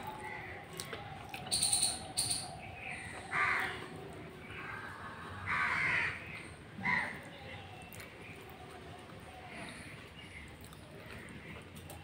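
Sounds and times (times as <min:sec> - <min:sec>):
crow cawing: 0:03.2 - 0:03.9, 0:04.6 - 0:07.2.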